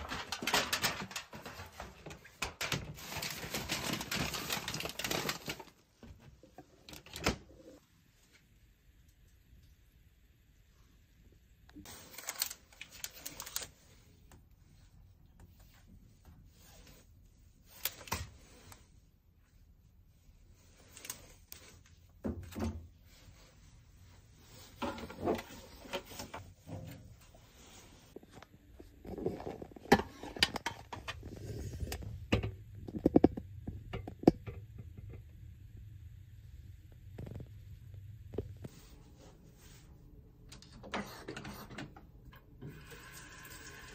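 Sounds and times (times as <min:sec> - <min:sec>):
objects knocking and clattering: 0:00.0 - 0:07.3, 0:24.6 - 0:27.2, 0:28.2 - 0:35.4.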